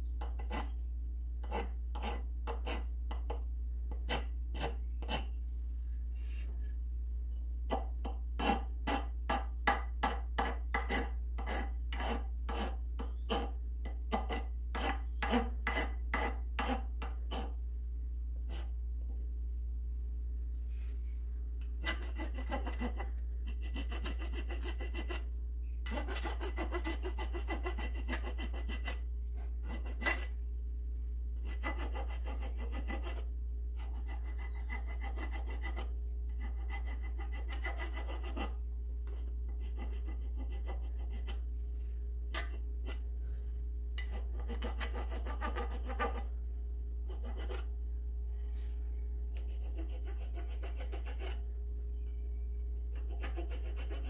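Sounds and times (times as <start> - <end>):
steady low hum: 0.0 - 54.0
rasp filing wood: 1.4 - 2.9, 8.4 - 13.5, 14.1 - 17.5, 21.8 - 25.2, 25.9 - 29.0, 31.5 - 33.2, 33.8 - 38.6, 39.5 - 41.4, 44.0 - 46.3, 49.4 - 51.4, 53.0 - 54.0.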